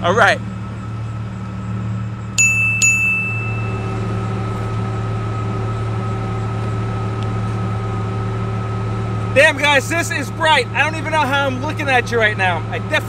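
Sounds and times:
engine idling hum: 0.0s - 13.0s
electronic warning chime dings: 2.4s - 4.5s.

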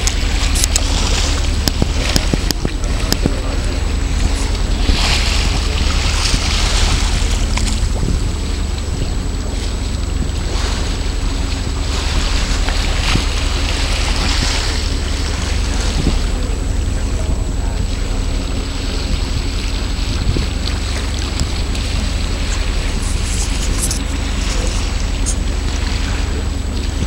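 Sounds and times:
steady low rumble: 0.0s - 27.0s
water rushing along boat hull: 0.0s - 27.0s
wind buffeting microphone: 0.0s - 27.0s.

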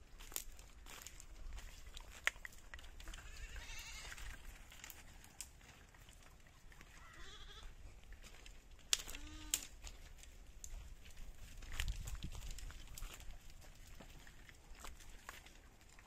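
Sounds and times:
goats bleating: 3.1s - 4.3s, 6.9s - 7.8s, 9.0s - 9.7s.

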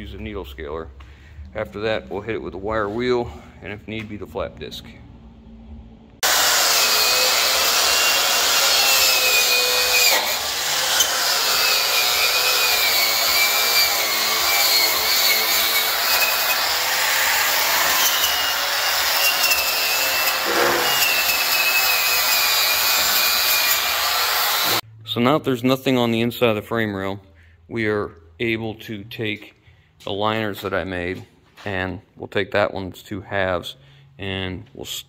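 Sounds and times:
power grinder grinding metal: 6.2s - 24.8s.

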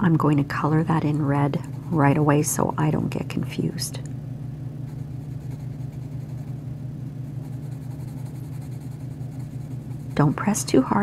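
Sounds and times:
washer and dryer humming: 0.0s - 11.0s
pencil scratching on paper: 4.9s - 6.6s, 7.3s - 10.7s.

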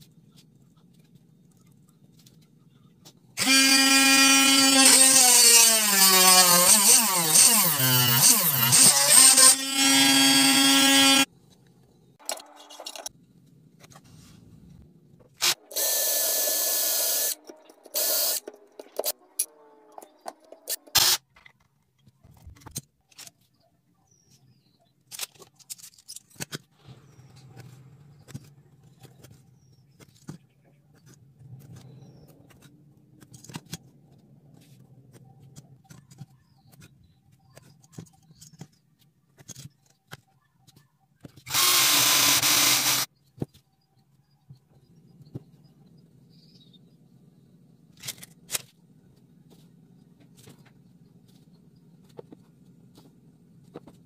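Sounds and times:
power tool motor whining: 3.4s - 11.3s, 18.0s - 18.4s, 41.5s - 43.1s.

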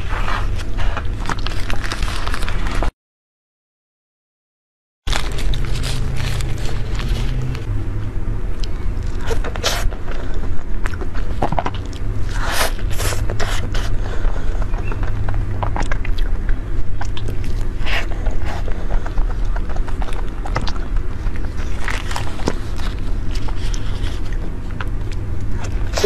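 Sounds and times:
low hum: 5.1s - 26.0s
wet chewing and lip smacks: 12.9s - 26.0s.

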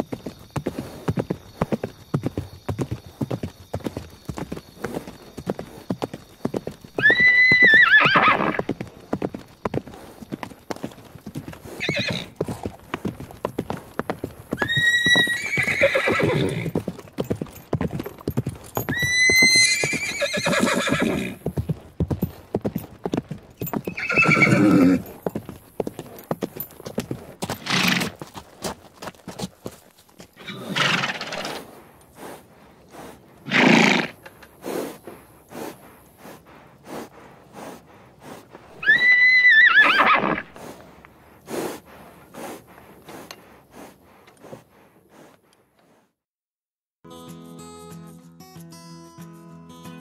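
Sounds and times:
hooves clip-clopping: 0.0s - 46.0s
horses neighing: 4.3s - 21.8s, 23.3s - 28.5s, 30.3s - 44.6s.

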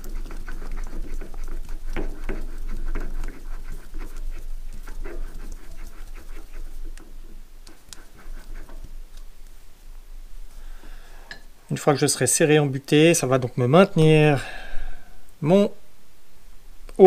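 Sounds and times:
metal threads rasping and clicking: 0.0s - 9.5s.

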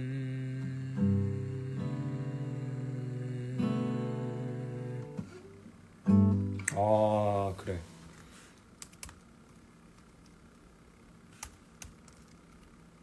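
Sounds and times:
acoustic guitar ringing: 0.0s - 8.2s.

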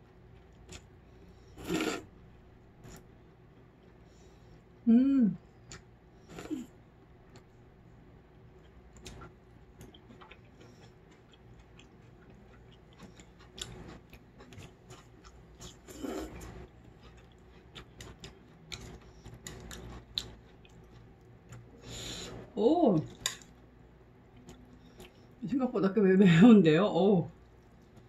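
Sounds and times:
mouth chewing and slurping noodles: 0.4s - 2.2s, 8.6s - 22.0s.

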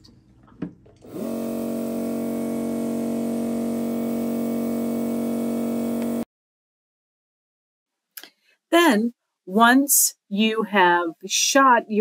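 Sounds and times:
serger air threading hum: 1.0s - 6.2s.

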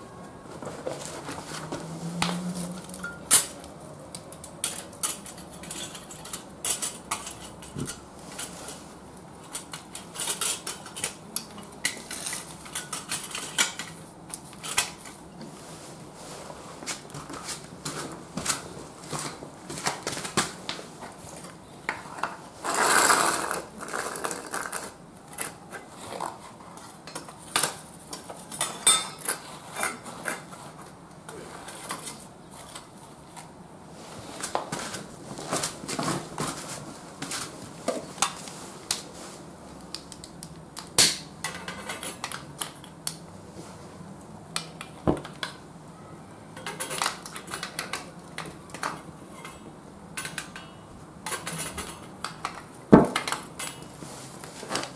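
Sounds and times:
scrape on concrete: 22.6s - 25.0s.

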